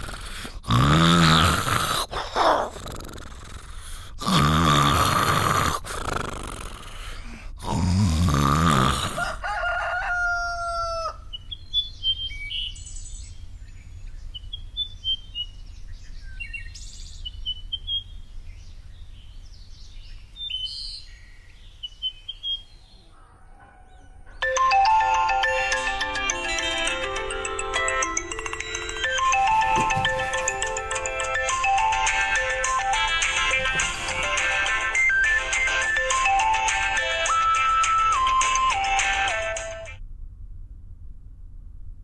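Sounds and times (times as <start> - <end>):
man snoring: 0.0 - 9.4, 29.0 - 35.2
rooster crowing: 9.1 - 11.3, 22.8 - 25.0
small birds chirping: 11.2 - 24.5.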